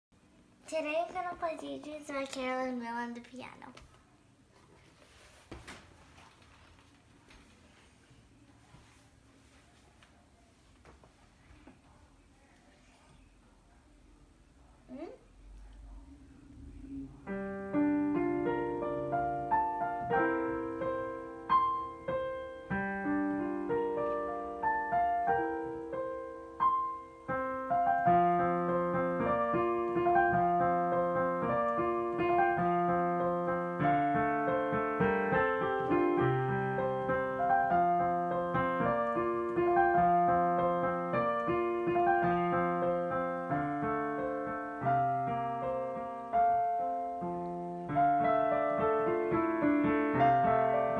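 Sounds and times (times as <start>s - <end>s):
digital piano playing: 16.8s - 50.9s.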